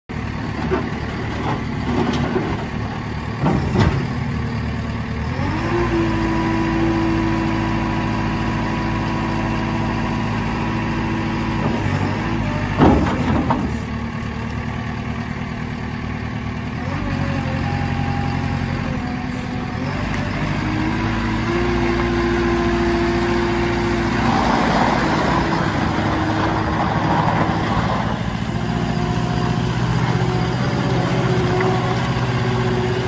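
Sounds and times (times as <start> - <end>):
diesel engine running: 0.1 - 33.0
engine revs whining: 5.2 - 13.5, 16.8 - 33.0.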